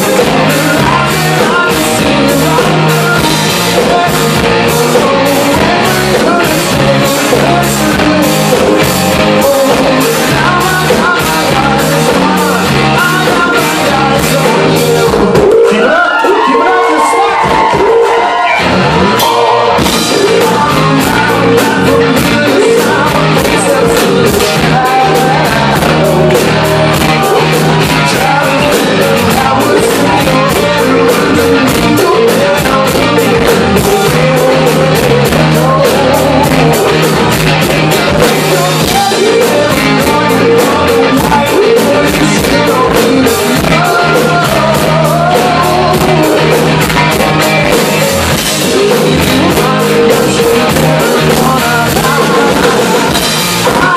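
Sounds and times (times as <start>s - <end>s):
live rock band playing: 0.0s - 53.9s
man singing lead vocal: 0.0s - 53.9s.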